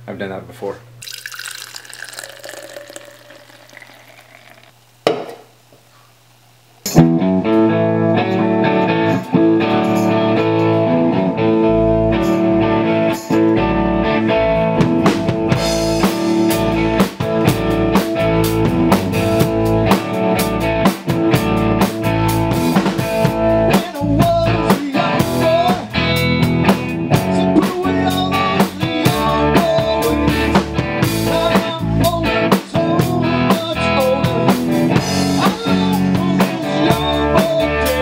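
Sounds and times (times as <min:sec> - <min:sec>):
drink pouring into plastic bottle: 0:01.0 - 0:04.9
knock on bottle: 0:05.0 - 0:05.4
bass guitar: 0:06.9 - 0:38.0
electric guitar: 0:06.9 - 0:38.0
drum kit with cymbals and snare: 0:14.8 - 0:38.0.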